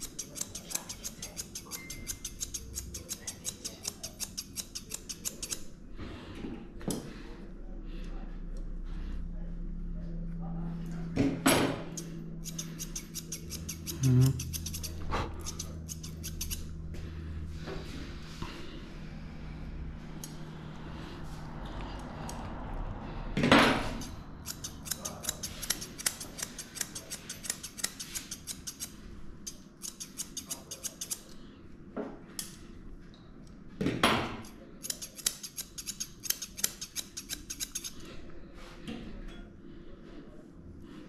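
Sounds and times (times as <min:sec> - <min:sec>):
scissors snipping hair: 0:00.0 - 0:05.7, 0:11.9 - 0:16.7, 0:20.1 - 0:20.4, 0:23.8 - 0:31.4, 0:34.4 - 0:38.1.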